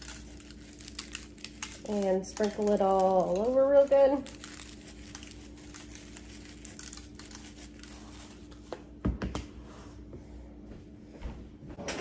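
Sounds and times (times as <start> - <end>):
seasoning pattering from shaker: 0.0 - 8.5
foil crinkling: 0.0 - 8.7.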